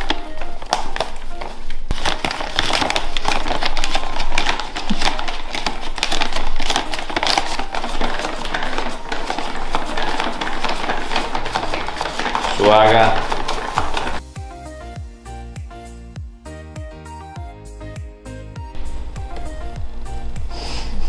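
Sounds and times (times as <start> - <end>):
plastic bag crinkling: 0.0 - 14.2
flour pouring into a bowl: 1.9 - 14.2.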